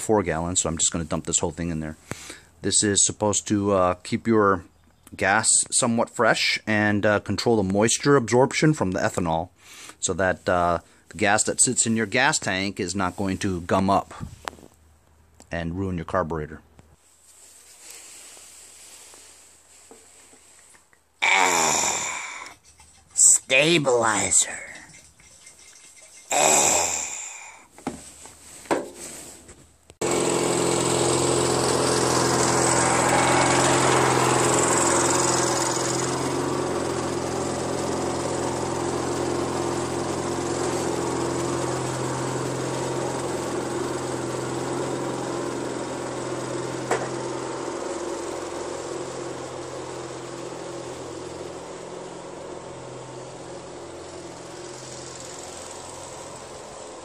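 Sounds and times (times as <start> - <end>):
lawn tractor engine running: 22.6 - 26.2, 30.0 - 57.0.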